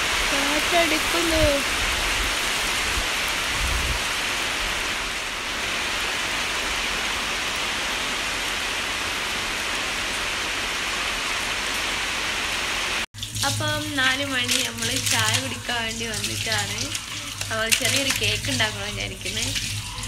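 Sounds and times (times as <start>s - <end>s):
heavy rain pouring: 0.0s - 20.0s
low rumble of wind: 1.0s - 7.5s.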